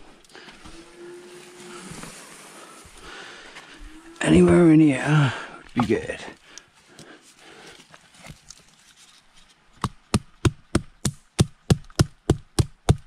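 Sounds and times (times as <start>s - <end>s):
quiet rustling: 0.0s - 9.8s
wooden mallet striking stake: 9.8s - 13.0s.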